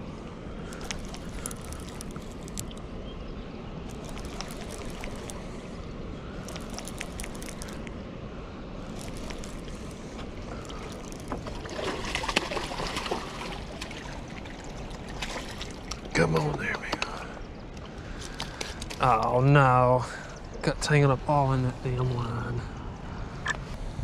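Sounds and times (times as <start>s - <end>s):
flowing river water: 0.0s - 23.6s
fish splashing: 0.6s - 2.8s, 3.9s - 5.7s, 6.4s - 7.9s, 8.8s - 16.1s
wind rumble on microphone: 20.4s - 24.0s.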